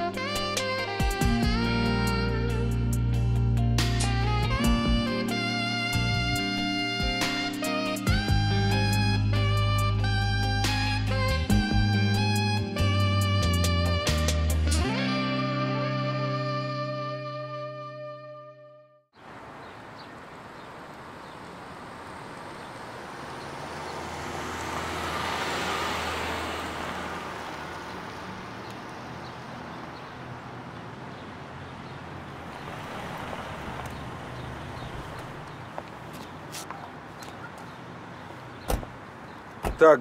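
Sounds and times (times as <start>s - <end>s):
car passing: 19.2s - 40.0s.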